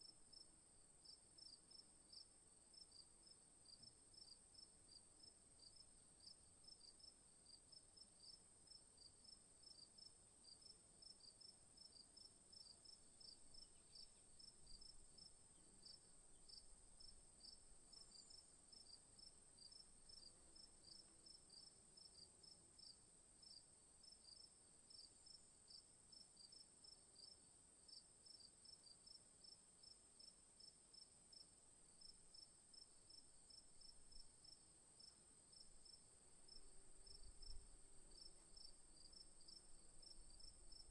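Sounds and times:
insect chirping: 8.2 - 40.9.

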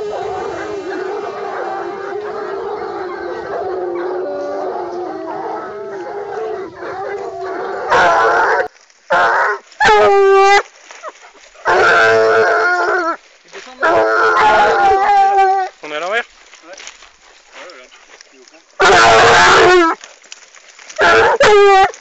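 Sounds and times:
hounds baying in chorus: 0.0 - 13.2, 13.8 - 15.8, 18.8 - 20.1, 20.8 - 22.0
single hound baying: 0.0 - 13.2, 13.8 - 15.7, 18.8 - 20.1, 21.0 - 22.0.

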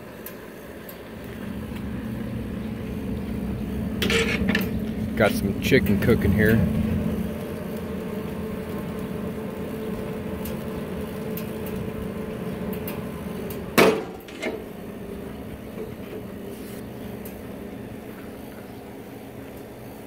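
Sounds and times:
steady mechanical hum: 0.0 - 20.0
steel lid clanging shut: 4.0 - 4.8, 13.8 - 14.6.

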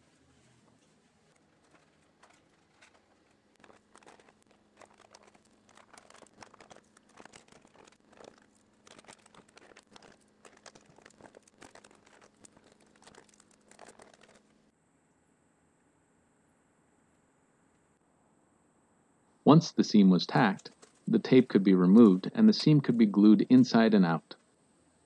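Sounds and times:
faint steady hum: 0.0 - 25.0
tape crinkling and ripping: 1.5 - 14.6.

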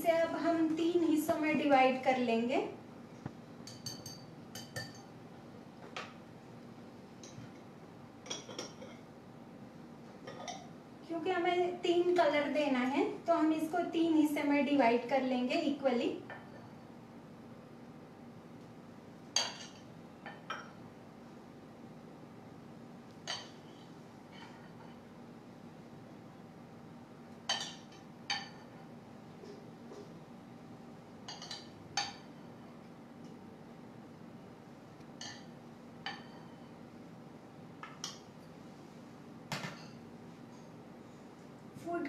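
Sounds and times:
metal spoon clinking on glass bowl: 3.6 - 5.1.

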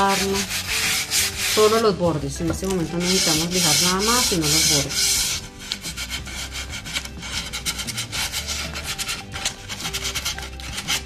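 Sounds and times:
sandpaper rasping on board: 0.0 - 1.9, 2.8 - 11.0.

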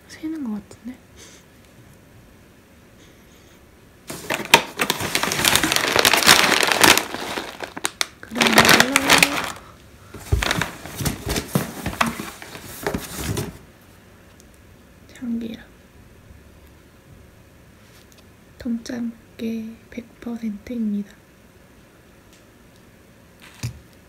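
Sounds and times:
plastic bag crinkling: 4.1 - 13.5
cardboard knocks and scrapes: 10.2 - 13.6.

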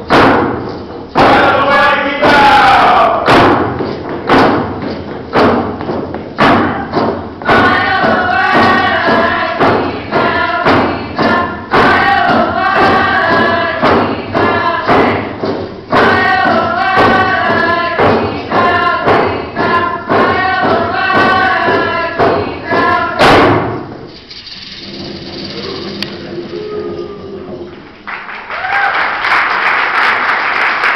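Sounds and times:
regular drumbeat: 0.0 - 26.8
group singing in unison: 7.4 - 23.6
hall ambience: 24.0 - 28.1.

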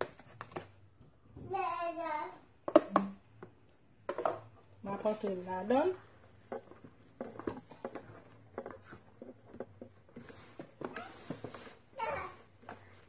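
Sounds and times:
mixer beaters tapping plastic bowl: 2.6 - 4.5, 6.4 - 10.1.

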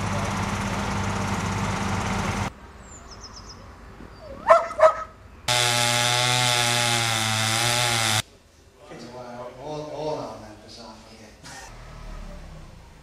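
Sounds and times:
engine running steadily: 0.0 - 2.5
small engine running: 0.0 - 2.5, 5.5 - 8.2
dog barking: 4.3 - 5.2.

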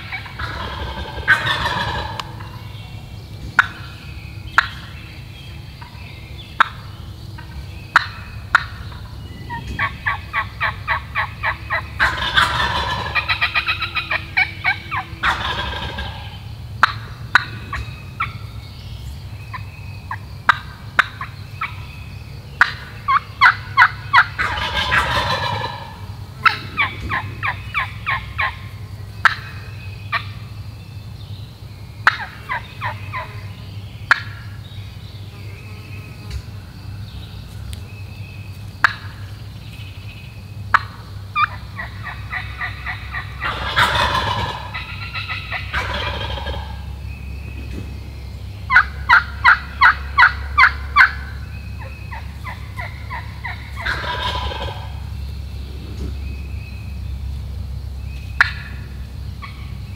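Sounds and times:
hen turkey yelps: 0.0 - 2.6, 9.5 - 18.3, 22.6 - 28.6, 32.0 - 33.3, 40.7 - 46.8, 48.7 - 55.0
turkey clucks and cutting: 0.0 - 2.6, 7.4 - 18.3, 22.6 - 29.5, 32.0 - 33.3, 40.7 - 46.8, 48.7 - 55.0, 58.4 - 58.8
turkey gobbling: 0.0 - 2.9, 3.5 - 5.0, 6.6 - 18.5, 19.5 - 21.9, 22.6 - 30.4, 32.0 - 34.6, 38.8 - 39.4, 40.7 - 47.0, 48.7 - 55.1, 58.4 - 59.8.

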